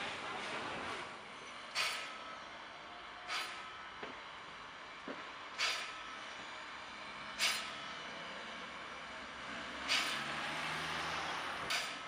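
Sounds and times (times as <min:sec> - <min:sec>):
steam locomotive chuffs: 0:01.5 - 0:03.9, 0:05.4 - 0:06.4, 0:07.2 - 0:08.0, 0:09.5 - 0:12.0
steam hissing: 0:03.2 - 0:03.7, 0:05.6 - 0:06.0, 0:09.8 - 0:10.9.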